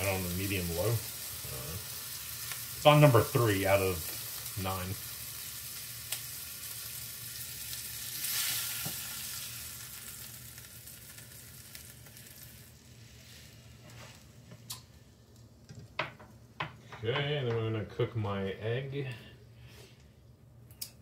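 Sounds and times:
sausage sizzling in frying pan: 0.0 - 15.6.

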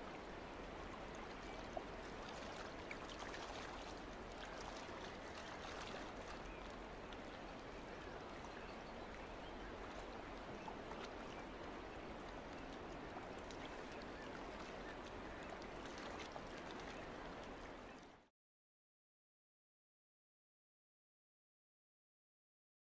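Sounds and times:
water lapping against boat hull: 0.0 - 18.2.

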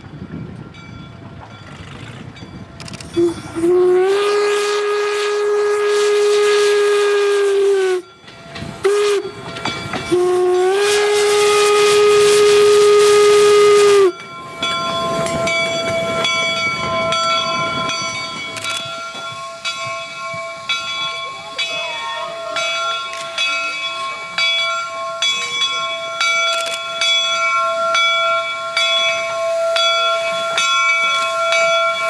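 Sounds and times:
steam locomotive whistle: 3.1 - 8.1, 8.8 - 14.2, 27.6 - 32.0.

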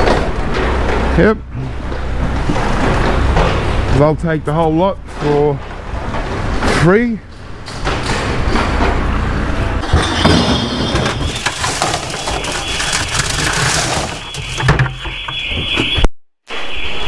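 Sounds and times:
plastic strapping rustling and clattering: 9.8 - 16.0.

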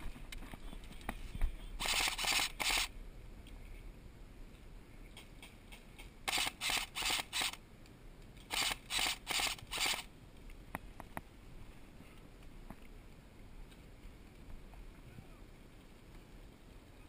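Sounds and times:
airsoft rifle firing bursts: 1.8 - 2.9, 6.3 - 7.6, 8.5 - 10.1.

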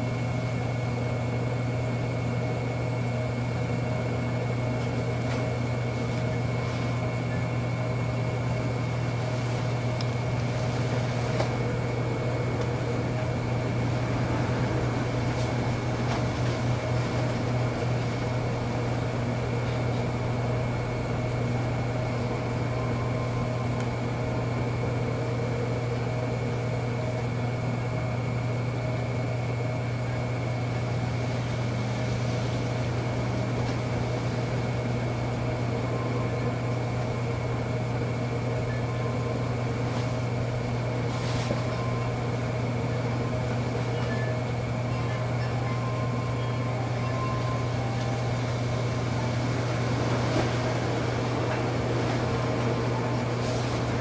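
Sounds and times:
potter's wheel motor hum: 0.0 - 54.0
faint high tones: 43.9 - 49.3.

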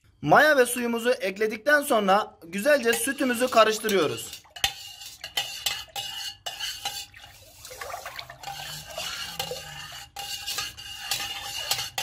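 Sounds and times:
spoon clinking on metal pot: 2.8 - 12.0
spoon swishing through milk: 3.0 - 12.0.

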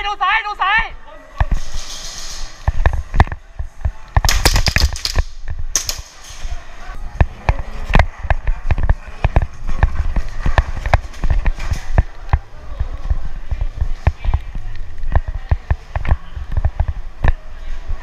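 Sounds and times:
gas pistol cracks: 4.3 - 6.2.

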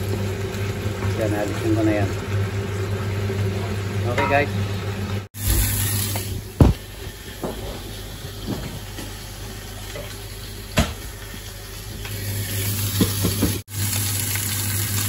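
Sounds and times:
kitchen hum and hiss: 0.0 - 15.0.

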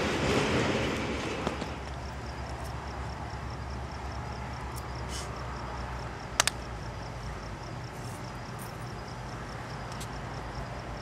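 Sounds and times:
crickets chirping: 0.0 - 11.0
distant diesel locomotive rumble: 0.0 - 11.0
sharp clicks: 6.4 - 6.6.

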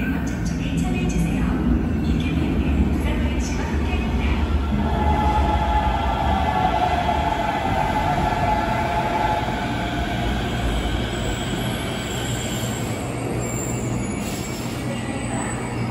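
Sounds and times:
train rumbling with high whine: 0.0 - 15.9.

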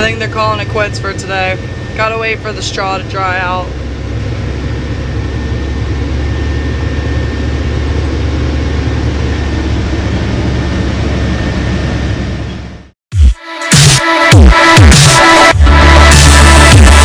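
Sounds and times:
faint steady whine: 0.0 - 12.6
truck engine and road rumble: 0.0 - 13.0.

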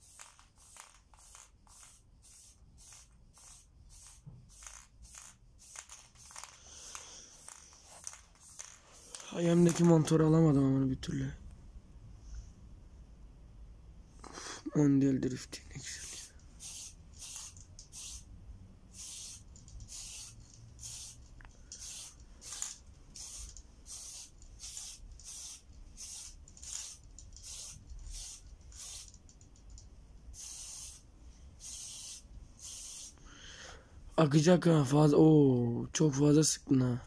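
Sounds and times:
aerosol spray can hissing: 0.0 - 9.9, 15.8 - 33.2.

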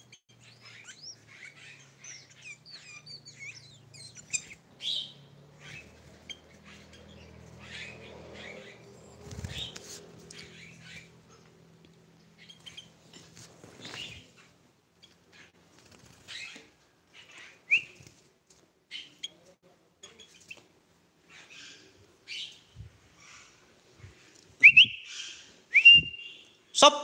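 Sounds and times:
bird chirping: 0.0 - 18.1, 18.9 - 26.9
bird rising whistles: 24.6 - 26.5.

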